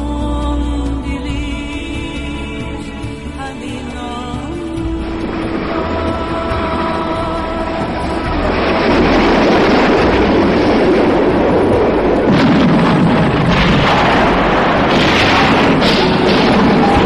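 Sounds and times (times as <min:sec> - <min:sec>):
battle rumble: 0:05.3 - 0:17.0
explosions and artillery fire: 0:09.6 - 0:17.0
sharp cracks: 0:09.7 - 0:17.0.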